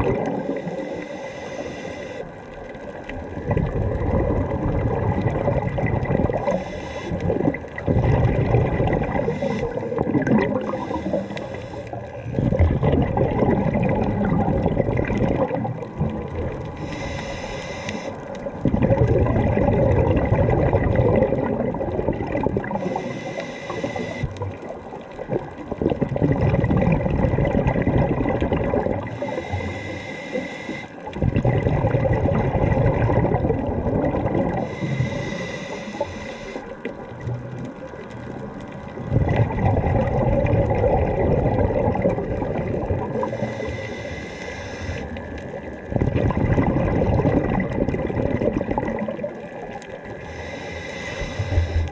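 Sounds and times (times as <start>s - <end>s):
bubbling exhalations underwater: 0.0s - 0.7s, 3.1s - 11.2s, 11.9s - 16.9s, 18.4s - 23.1s, 23.7s - 29.4s, 31.1s - 34.8s, 36.7s - 43.6s, 45.0s - 50.2s
regulator inhalation hiss: 0.4s - 2.4s, 6.4s - 7.2s, 9.2s - 9.8s, 10.6s - 12.1s, 16.8s - 18.3s, 22.8s - 24.3s, 29.1s - 31.0s, 34.6s - 36.8s, 43.2s - 45.2s, 50.2s - 51.9s.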